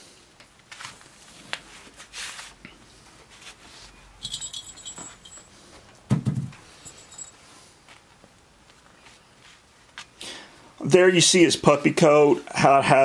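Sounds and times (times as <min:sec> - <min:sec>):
cage ball jingling: 0:04.2 - 0:05.6, 0:06.6 - 0:07.4.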